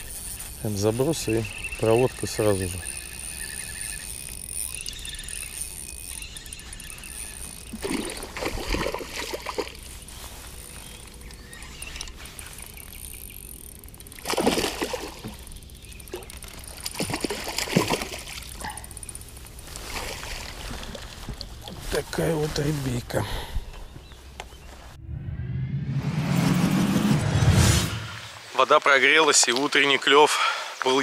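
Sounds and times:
fish splashing in water: 1.5 - 10.7, 11.6 - 21.7.

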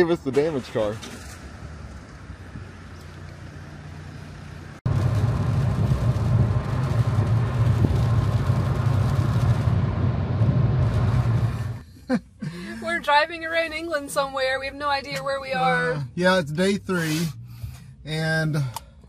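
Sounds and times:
engine and road drone in car: 0.0 - 19.0
quiet car hum: 0.0 - 19.0
road hiss: 16.9 - 18.6.

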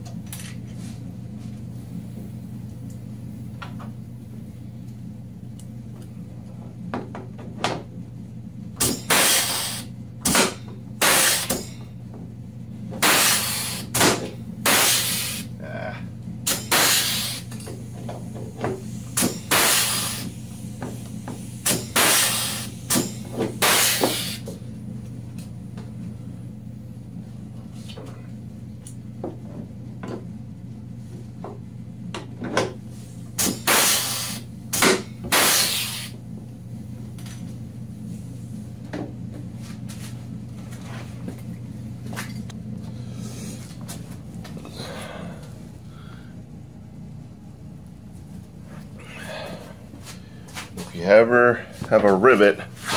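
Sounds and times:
steady low hum: 0.0 - 52.9
rivet gun air hissing: 9.1 - 9.9, 13.0 - 14.0, 14.6 - 15.5, 16.5 - 17.6, 18.9 - 24.5, 33.4 - 34.5, 35.3 - 36.2.

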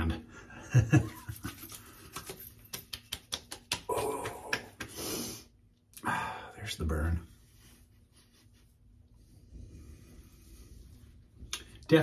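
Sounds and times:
hands patting face: 1.0 - 5.5.

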